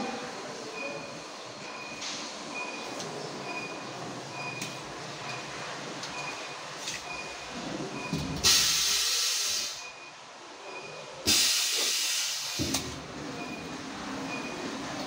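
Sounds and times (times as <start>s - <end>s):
compressed air hissing: 8.4s - 9.8s, 11.3s - 12.7s.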